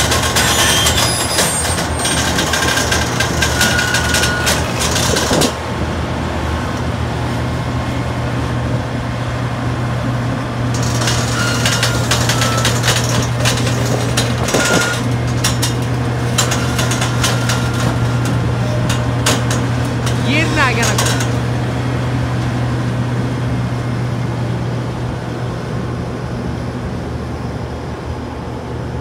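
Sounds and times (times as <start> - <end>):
excavator diesel engine running: 0.0 - 29.0
metal knocks and clanks: 10.8 - 21.5.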